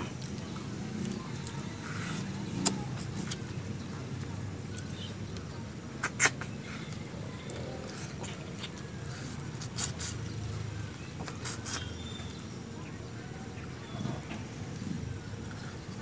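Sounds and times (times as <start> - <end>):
lip smacks and sucking clicks: 0.2 - 3.5, 5.4 - 10.3, 11.2 - 11.9.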